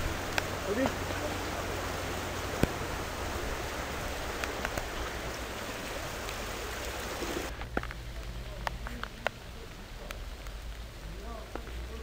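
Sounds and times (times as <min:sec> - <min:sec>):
river rushing: 0:00.0 - 0:07.6
rain: 0:00.0 - 0:12.0.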